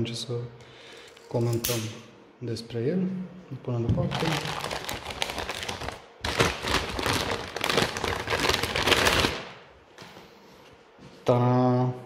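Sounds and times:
plastic bag crinkling: 4.1 - 9.6.

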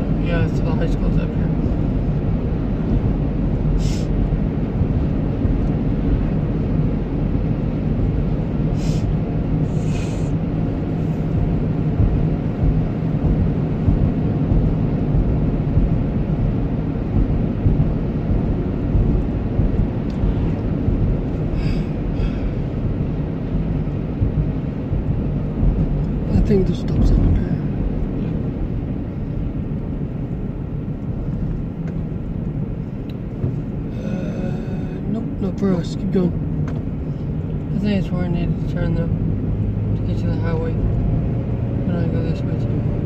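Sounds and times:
car engine and tyre rumble: 0.0 - 43.0
steady hum: 0.0 - 43.0
brief high hisses: 3.8 - 4.1, 8.8 - 9.1.

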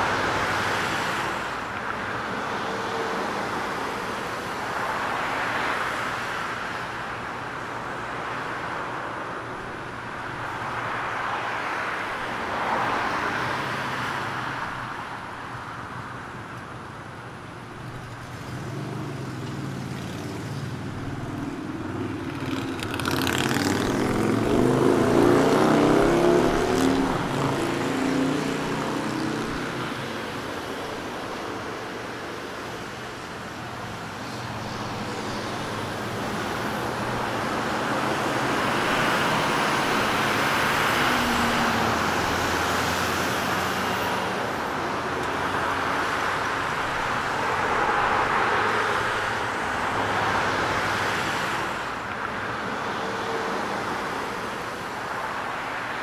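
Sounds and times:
city street traffic: 0.0 - 56.0
vehicle passing close: 18.4 - 31.1.

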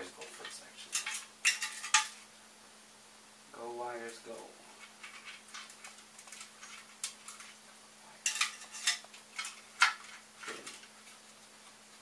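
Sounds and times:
wires scraping and clicking on metal tube: 0.0 - 2.2, 4.3 - 7.6, 8.2 - 11.8.

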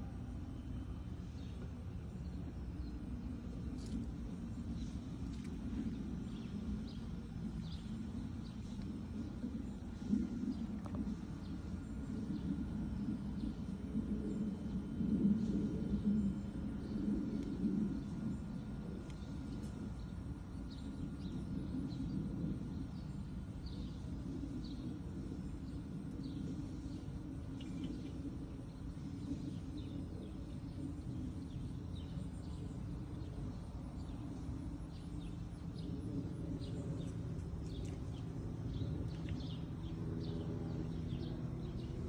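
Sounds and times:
faint steady hum: 0.0 - 42.0
low outdoor rumble: 0.0 - 42.0
small birds chirping: 14.6 - 42.0.

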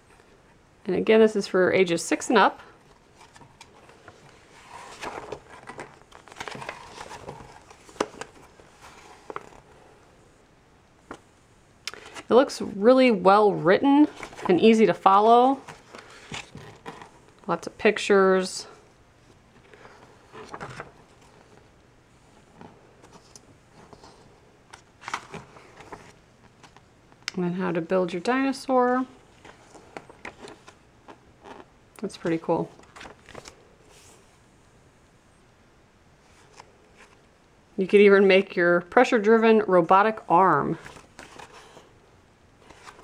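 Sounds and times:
paper pages turning: 3.1 - 9.6, 15.5 - 17.2, 19.6 - 21.7, 22.6 - 26.9, 29.4 - 33.6, 40.7 - 41.9, 42.6 - 43.0.

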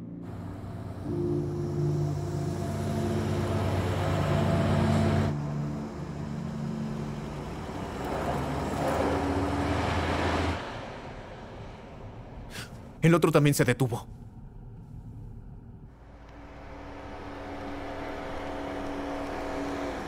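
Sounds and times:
car engine hum: 0.0 - 13.0, 14.1 - 20.0
second vehicle engine: 0.0 - 13.0, 14.1 - 20.0.

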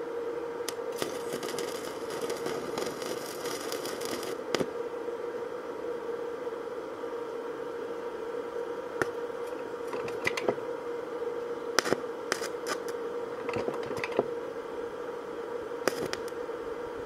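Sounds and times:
steady hum: 0.0 - 17.0
electrode clicks and crackles: 0.6 - 4.7, 11.8 - 14.1, 15.8 - 16.4.

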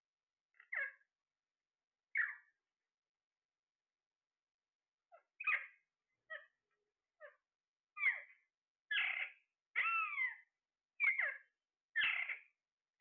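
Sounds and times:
parakeet calling: 0.6 - 1.1, 2.1 - 2.6, 5.1 - 6.6, 8.0 - 12.6.

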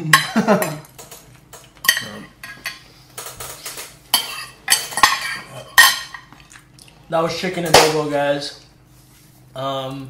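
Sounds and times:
cutlery clinking on plates: 1.6 - 6.3.

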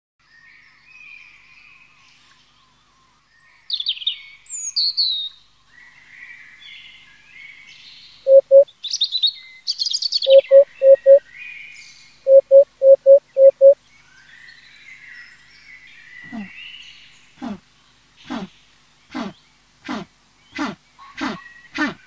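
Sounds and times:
small birds chirping and singing: 0.2 - 22.0
hoopoe hollow calls: 8.3 - 8.6, 10.3 - 11.2, 12.3 - 13.8, 16.2 - 16.6, 17.4 - 22.0.

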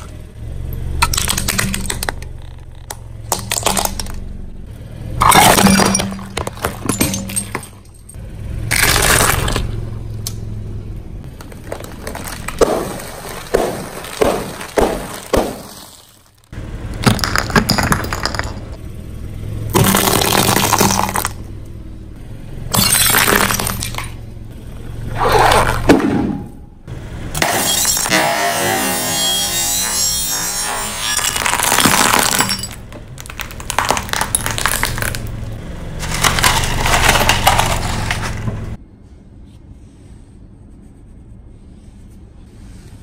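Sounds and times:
car engine hum: 0.0 - 30.3, 30.9 - 43.0
tyre crushing plastic: 11.3 - 16.4, 31.2 - 35.3, 36.0 - 38.7.

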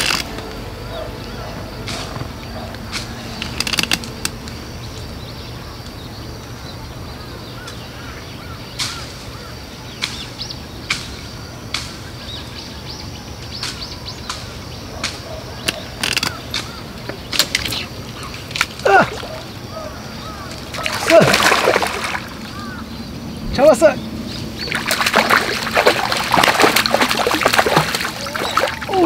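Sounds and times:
steady low rumble: 0.0 - 7.4, 22.3 - 26.3
birds chirping: 0.0 - 29.0.

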